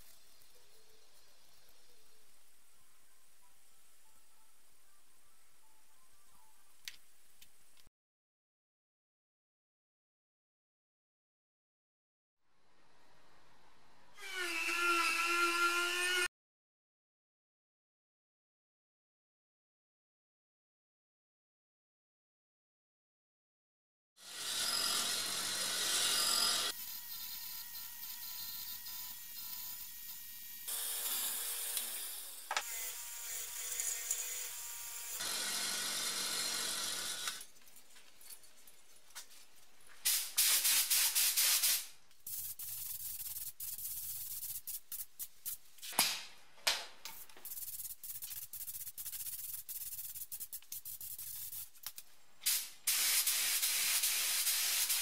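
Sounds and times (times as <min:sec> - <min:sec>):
air spray gun hissing: 0:40.0 - 0:45.6, 0:47.2 - 0:51.8, 0:52.4 - 0:55.0
rubbing and handling noises: 0:42.2 - 0:46.0, 0:47.1 - 0:52.1.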